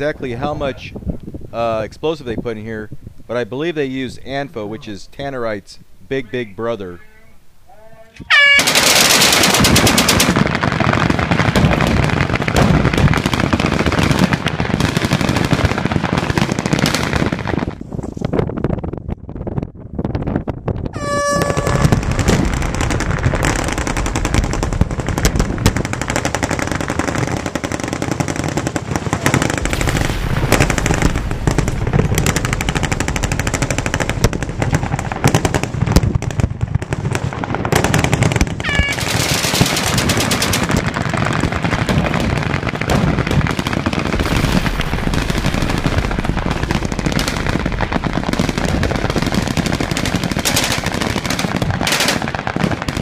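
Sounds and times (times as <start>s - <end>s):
horn sounding: 8.2s - 8.8s, 21.0s - 22.0s, 38.6s - 39.1s
automatic machine-gun fire: 8.4s - 17.1s, 21.6s - 36.0s, 37.0s - 40.8s, 41.7s - 53.0s
explosive charges booming: 20.9s - 53.0s.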